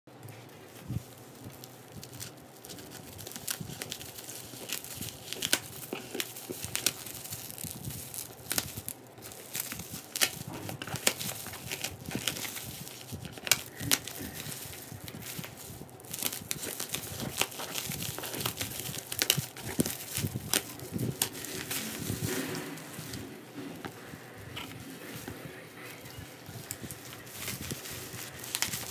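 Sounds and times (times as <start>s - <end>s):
bubble wrap crinkling: 0.1s - 28.9s.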